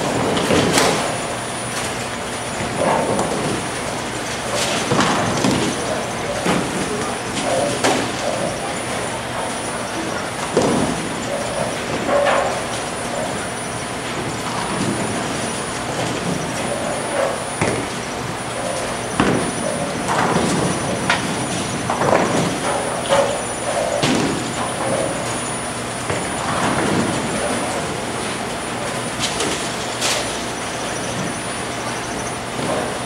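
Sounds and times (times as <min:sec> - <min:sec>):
bowling balls rolling: 0:00.0 - 0:33.0
bowling pins crashing: 0:04.6 - 0:30.3.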